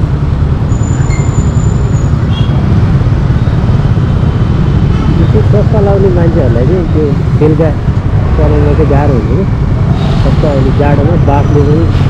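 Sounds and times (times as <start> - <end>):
motorcycle engine rumble: 0.0 - 12.0
road noise: 0.0 - 12.0.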